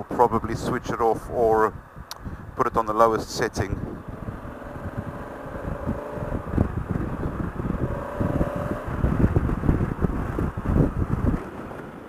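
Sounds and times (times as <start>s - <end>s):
wind buffeting microphone: 0.0s - 12.0s
motorcycle engine running: 3.4s - 11.4s.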